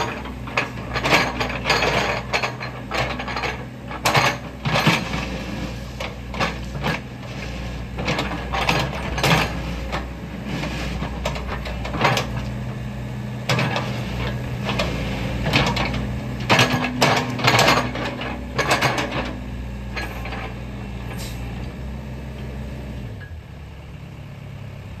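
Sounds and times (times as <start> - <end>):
metal clanks from bucket: 0.0 - 5.4, 13.5 - 19.4
excavator diesel engine running: 0.0 - 25.0.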